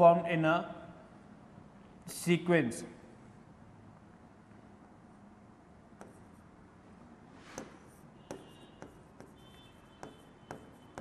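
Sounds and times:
pen tapping and scratching screen: 6.0 - 6.5, 7.4 - 11.0.

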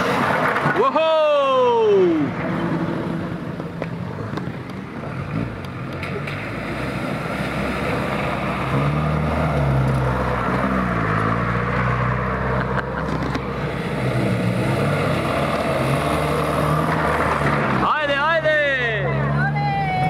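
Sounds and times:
off-road vehicle engine revving: 5.0 - 20.0.

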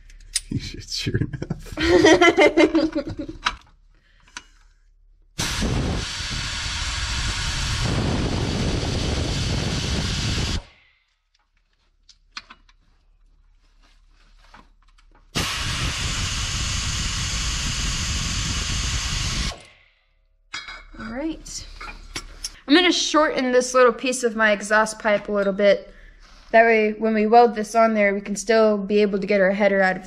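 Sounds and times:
air ratchet whirring: 5.4 - 10.8, 15.3 - 19.8.

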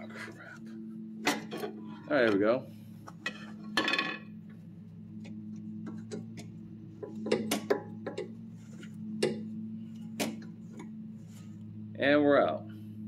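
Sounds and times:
steady low hum: 0.0 - 13.0
pry bar clanking on metal: 6.0 - 8.4, 9.2 - 9.5.

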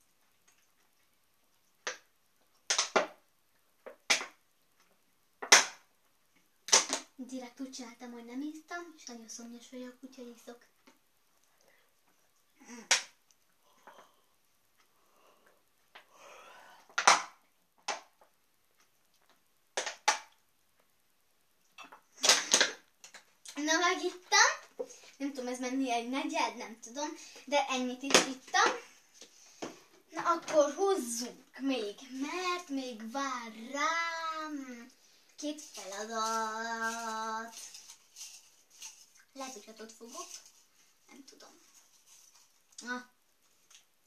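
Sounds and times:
plastic water bottle crackling: 35.4 - 42.8.

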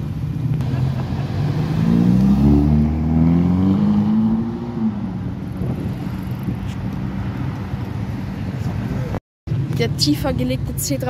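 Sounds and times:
street traffic noise: 0.0 - 11.0
car accelerating past: 0.6 - 6.2.

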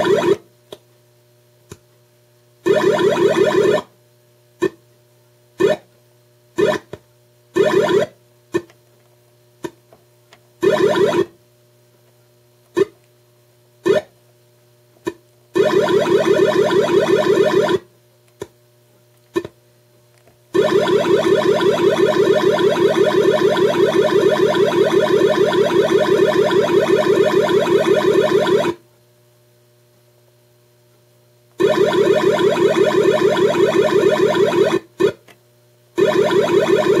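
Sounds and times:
warbling synth tone: 15.6 - 17.8, 20.6 - 28.8, 31.6 - 34.8, 36.0 - 37.0.

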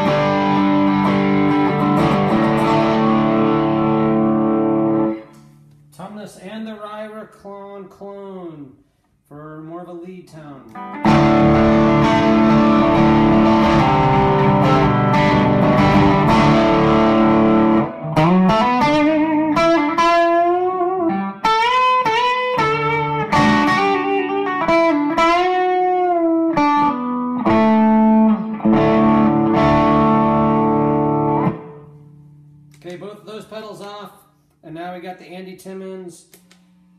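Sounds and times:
electric guitar playing: 0.0 - 5.8, 10.7 - 32.8.

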